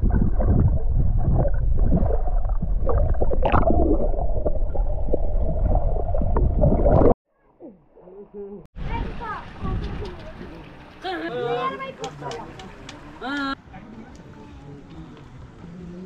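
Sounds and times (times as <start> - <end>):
bubbles stirred by swimmers: 0.0 - 7.2
underwater rumble and gurgling: 0.0 - 7.2.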